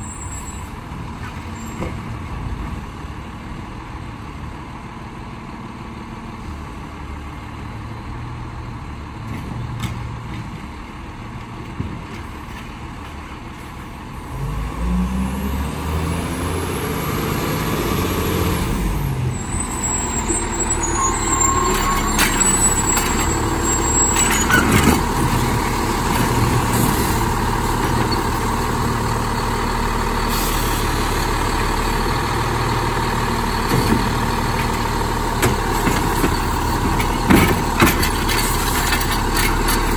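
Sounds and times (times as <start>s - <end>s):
garbage truck diesel engine: 0.0s - 39.9s
air brakes hissing: 30.2s - 31.0s.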